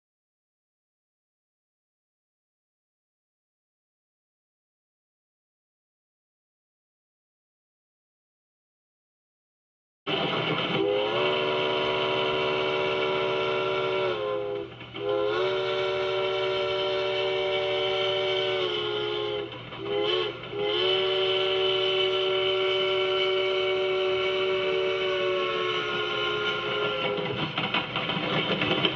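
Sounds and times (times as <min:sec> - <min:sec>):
chime train whistle blasts: 0:10.1 - 0:27.4.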